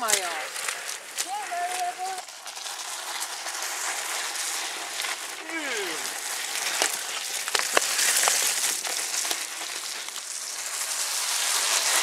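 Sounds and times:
bike clicks: 0:00.0 - 0:05.2, 0:06.1 - 0:10.8
bike tyres splashing through mud: 0:00.0 - 0:12.0.

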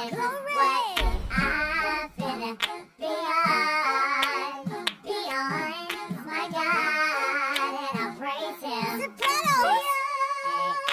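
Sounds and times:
hand claps: 0:01.0 - 0:02.8, 0:04.2 - 0:06.2, 0:07.5 - 0:07.8
choir singing: 0:01.0 - 0:09.2.

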